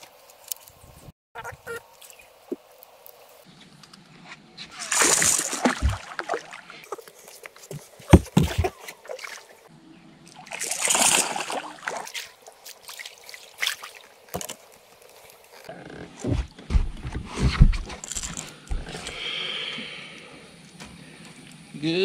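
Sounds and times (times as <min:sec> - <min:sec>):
fish splashing at water surface: 0:04.7 - 0:06.9, 0:10.4 - 0:14.4
low thumps against boat: 0:16.2 - 0:17.9.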